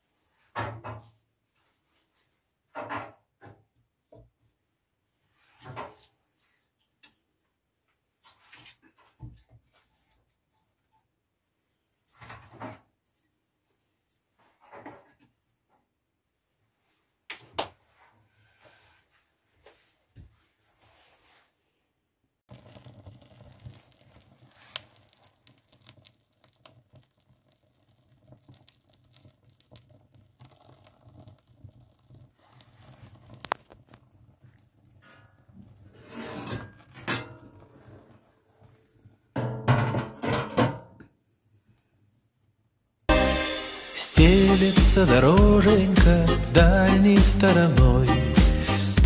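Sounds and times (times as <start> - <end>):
fire crackling and popping: 22.5 - 39.1, 43.2 - 49.0.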